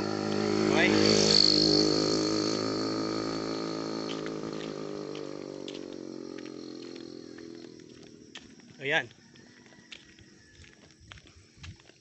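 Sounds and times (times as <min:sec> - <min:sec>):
engine running: 0:00.0 - 0:08.5.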